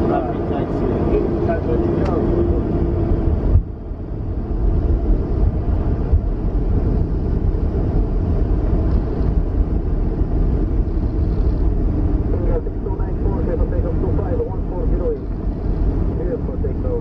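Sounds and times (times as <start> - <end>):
aircraft cockpit rumble: 0.0 - 17.0.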